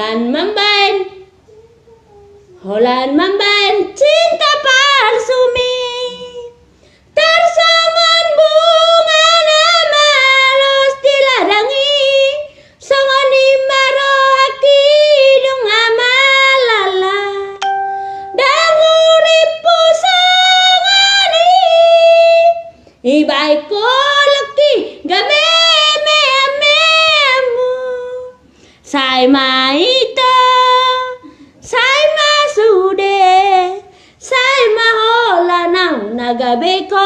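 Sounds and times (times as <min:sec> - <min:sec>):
woman singing with vibrato: 0:02.6 - 0:37.0
breaths: 0:06.7 - 0:07.2, 0:12.5 - 0:12.8, 0:22.7 - 0:23.1, 0:28.4 - 0:28.9, 0:31.2 - 0:31.6, 0:33.8 - 0:34.2.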